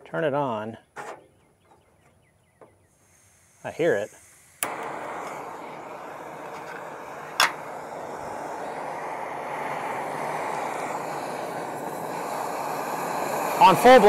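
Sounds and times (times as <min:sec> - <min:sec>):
gas stove hissing: 0:02.8 - 0:14.0.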